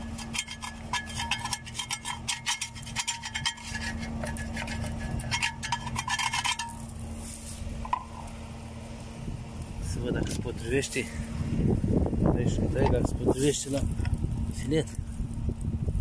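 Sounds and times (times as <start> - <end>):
screwdriver scraping metal blade: 0.0 - 6.9
metal disc ringing: 0.0 - 7.1
steady low hum: 0.0 - 16.0.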